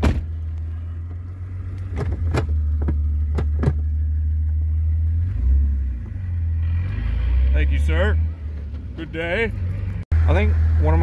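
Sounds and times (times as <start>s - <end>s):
car engine idling: 0.0s - 6.8s, 7.6s - 11.0s.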